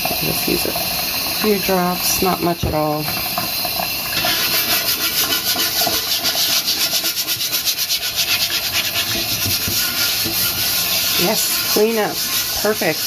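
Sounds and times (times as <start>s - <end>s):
running tap water: 0.0s - 13.0s
brush scrubbing griddle: 4.2s - 13.0s.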